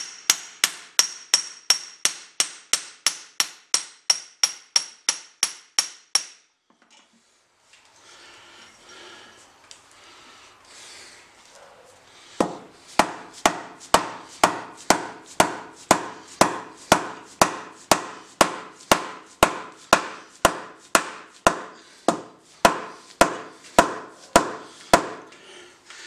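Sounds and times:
hammer striking steel punch: 0.0 - 6.5, 12.4 - 25.3.

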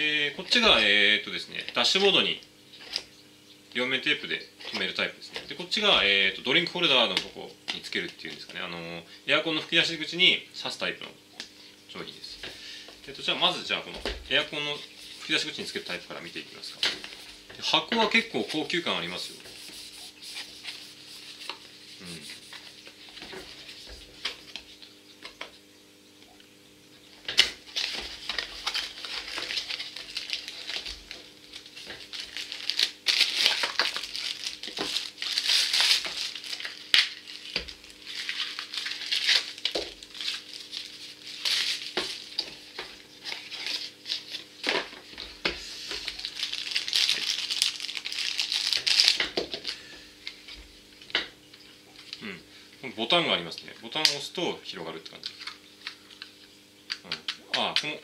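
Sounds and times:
faint steady hum: 0.0 - 58.0
plastic bag crinkling: 27.3 - 44.8, 45.7 - 49.9.

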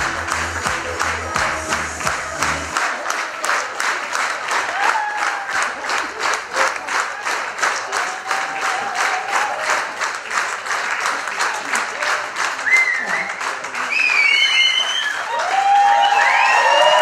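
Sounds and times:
audience rhythmic clapping: 0.0 - 17.0.

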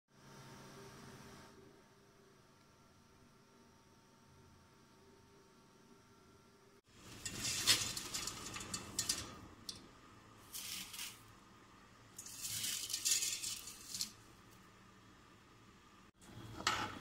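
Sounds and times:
dry spaghetti rattling into pot: 7.0 - 9.8, 12.2 - 14.2.

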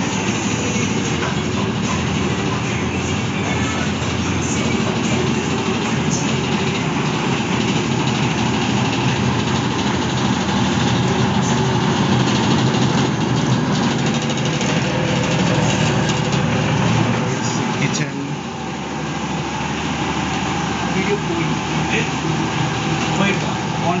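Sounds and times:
boat engine running: 0.0 - 24.0.

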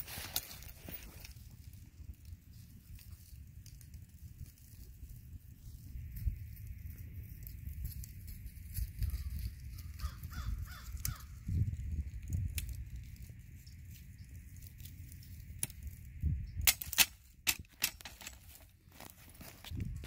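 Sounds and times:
wind rumble on microphone: 0.0 - 17.8, 19.3 - 20.0
bird cawing: 9.8 - 11.4.

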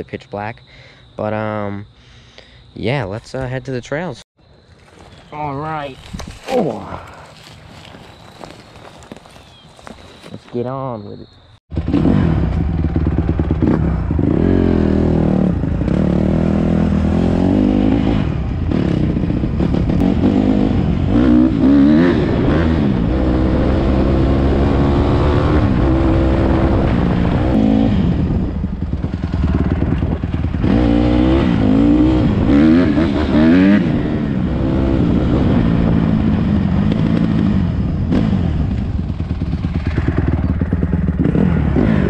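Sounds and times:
dirt bike engine revving: 11.7 - 42.0.

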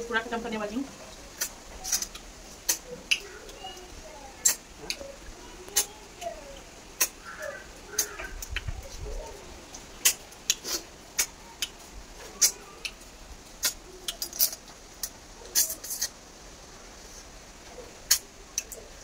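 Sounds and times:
sucking and smacking eating noises: 1.3 - 3.6, 4.4 - 5.1, 5.7 - 16.2.

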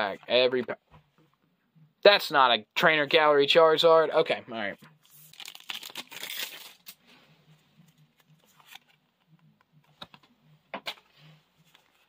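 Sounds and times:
cards sliding rustle: 8.1 - 9.0.

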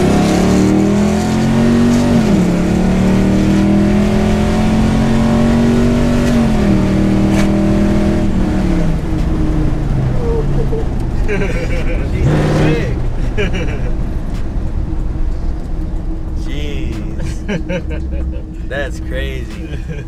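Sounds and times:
pickup engine under way: 0.0 - 20.0.

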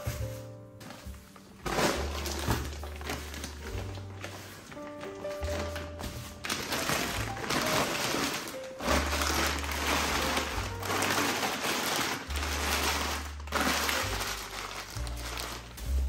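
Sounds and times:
background music with bass: 0.0 - 16.0
plastic bags crinkling: 0.0 - 16.0.

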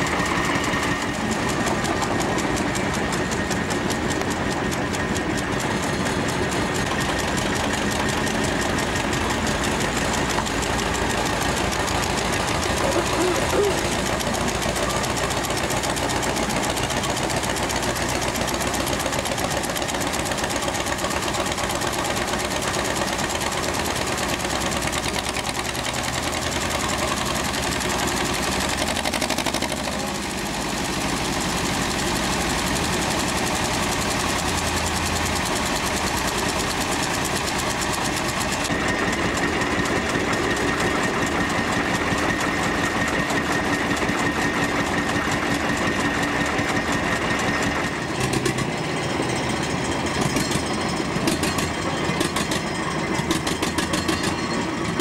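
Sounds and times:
diesel locomotive engine knocking: 0.0 - 55.0.

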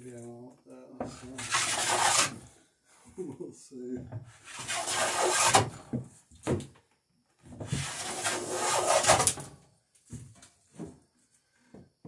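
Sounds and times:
hand plane shaving wood: 1.3 - 2.4, 4.4 - 5.8, 7.7 - 9.4.

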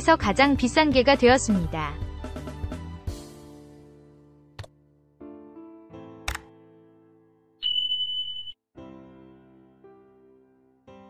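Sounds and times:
high alert tone: 7.6 - 8.6.

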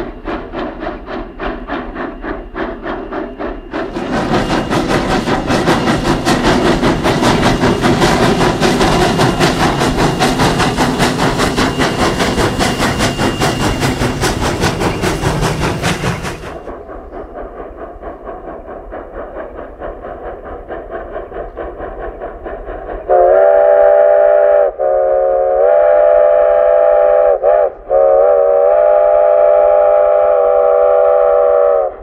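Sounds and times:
steam locomotive exhaust chuffs: 0.0 - 32.0.

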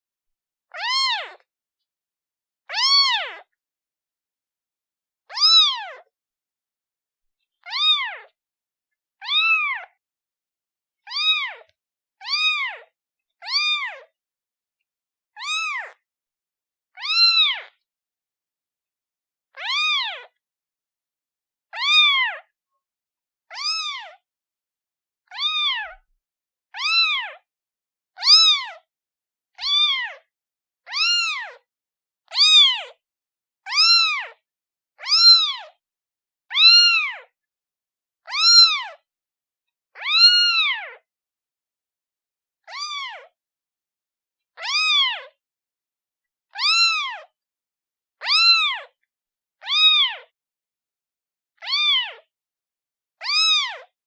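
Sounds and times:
kitten meowing: 0.7 - 1.5, 2.7 - 3.5, 5.3 - 6.1, 7.6 - 8.4, 9.2 - 10.0, 11.1 - 14.1, 15.4 - 16.0, 17.0 - 17.7, 19.5 - 20.4, 21.7 - 22.5, 23.5 - 24.2, 25.3 - 26.1, 26.8 - 27.4, 28.2 - 28.9, 29.6 - 30.2, 30.8 - 31.6, 32.3 - 33.0, 33.7 - 34.4, 35.0 - 35.8, 36.5 - 37.3, 38.2 - 39.0, 40.0 - 41.0, 42.6 - 43.3, 44.6 - 45.4, 46.5 - 47.3, 48.2 - 49.0, 49.6 - 50.3, 51.6 - 52.3, 53.2 - 53.9.

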